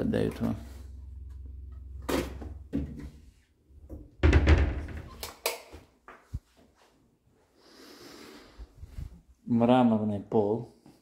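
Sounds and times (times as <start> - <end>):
cupboard door thunk and rattle: 3.9 - 5.2.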